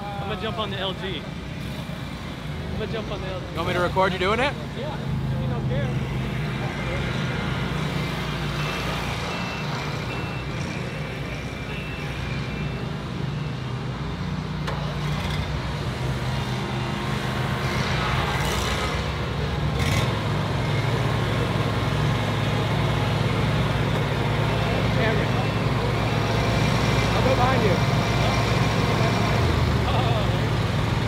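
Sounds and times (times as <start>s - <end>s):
mower engines running: 0.0s - 31.0s
faint warning beep: 6.0s - 14.3s, 24.4s - 27.8s.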